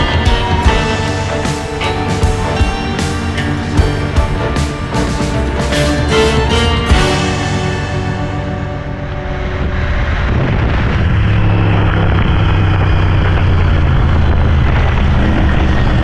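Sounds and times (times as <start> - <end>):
background music: 0.0 - 11.9
motorcycle engine drone: 0.0 - 16.0
rushing wind noise on microphone: 8.0 - 16.0.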